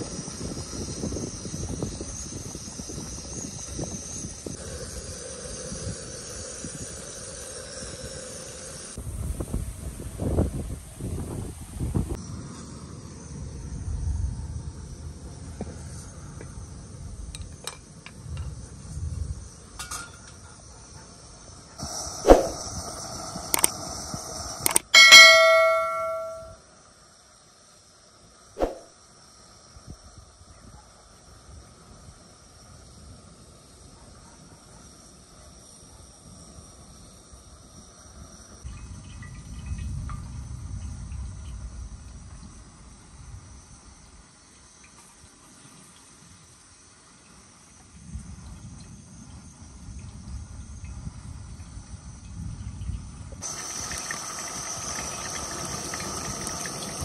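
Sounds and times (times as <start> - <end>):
wind buffeting microphone: 0.0 - 7.1, 9.0 - 12.2
steady high hiss: 0.0 - 13.5, 21.2 - 30.2, 53.4 - 57.0
crickets chirping: 0.0 - 57.0.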